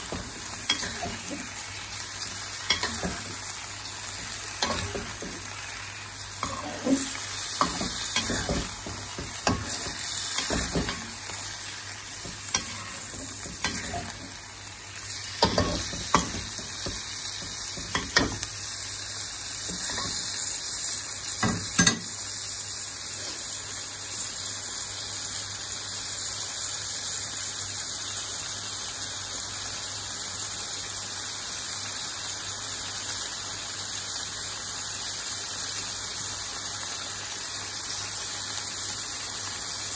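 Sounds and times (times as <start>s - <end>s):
food sizzling in hot oil: 0.0s - 39.9s
metal spatula scraping a wok: 6.4s - 11.2s, 12.5s - 14.3s.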